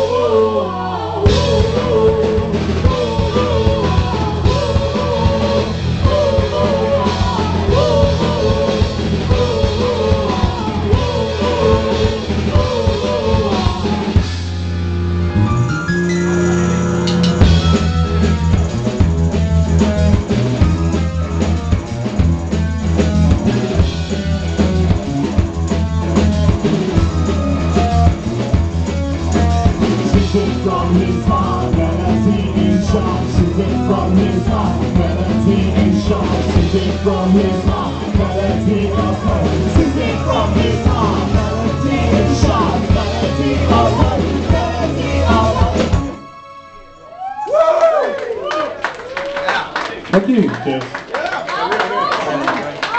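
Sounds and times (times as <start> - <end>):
woman singing: 0.0 - 14.2
drum kit beat: 0.0 - 46.3
rock band playing: 0.0 - 47.9.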